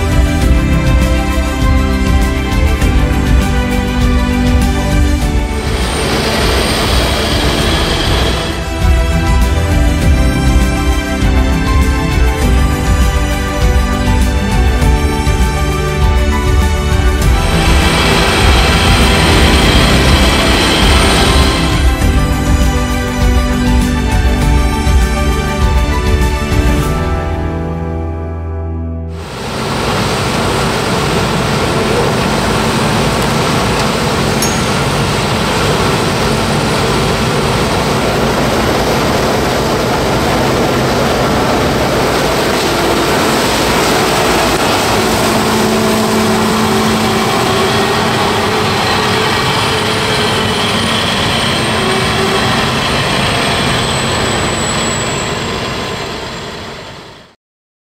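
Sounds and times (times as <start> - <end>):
combine harvester running: 0.0 - 27.1, 29.2 - 57.3.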